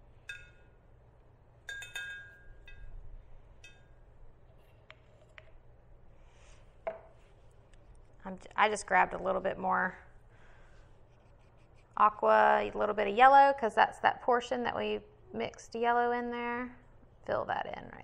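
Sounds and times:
paintbrush clinking against glass jar: 1.7 - 3.0.

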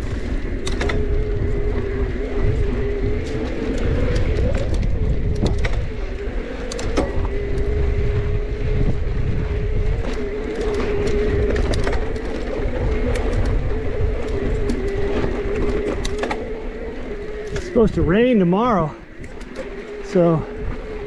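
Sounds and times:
bike clicks and rattles: 0.0 - 21.0
wind and tyres on dirt: 0.0 - 21.0.

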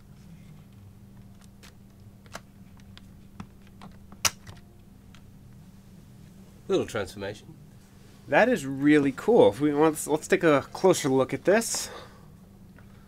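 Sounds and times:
sharp plastic snap: 4.2 - 4.6.

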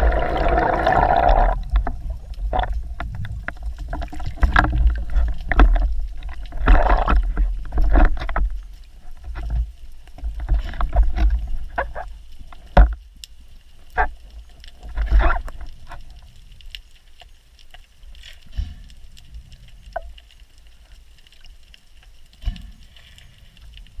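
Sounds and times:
water rushing and sloshing: 0.0 - 13.0.

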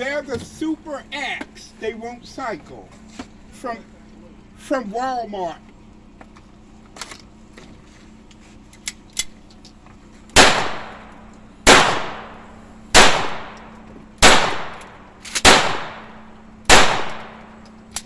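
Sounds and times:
handgun shots echoing: 10.4 - 18.0.

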